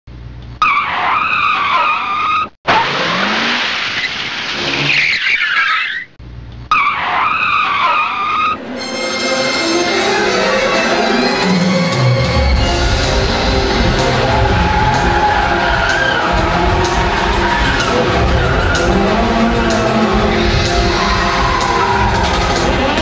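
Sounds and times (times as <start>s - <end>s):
tyre screech: 4.5s - 8.6s
rock music with electric guitar: 11.4s - 23.0s
rushing burst of noise: 12.4s - 23.0s.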